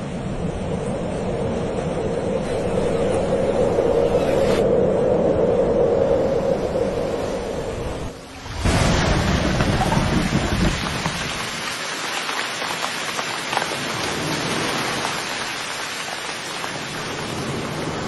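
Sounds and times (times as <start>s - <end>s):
thunder rumble: 0.0s - 11.7s
steady rain: 6.1s - 18.0s.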